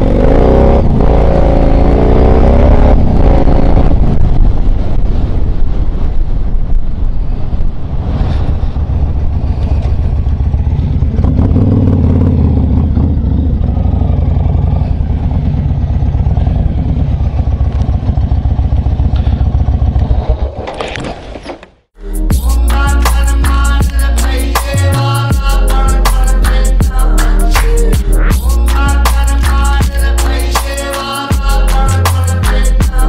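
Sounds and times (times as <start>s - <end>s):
motorcycle engine running: 8.6s - 20.6s
music: 22.0s - 33.0s.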